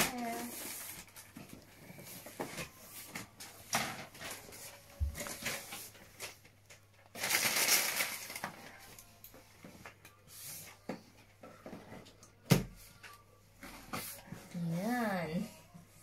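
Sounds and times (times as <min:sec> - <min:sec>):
packaging crinkling rustle: 0:00.0 - 0:09.1.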